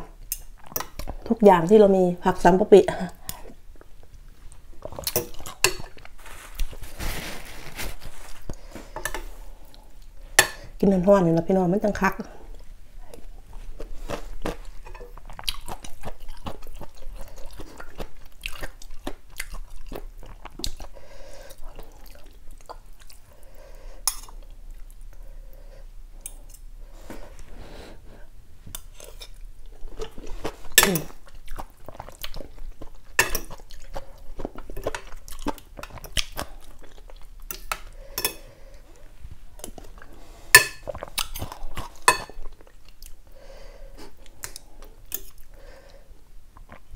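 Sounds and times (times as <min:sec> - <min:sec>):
person chewing noodles: 0:03.2 - 0:10.2, 0:12.5 - 0:26.7, 0:28.8 - 0:46.9
cutlery clinking against bowl: 0:42.1 - 0:42.4.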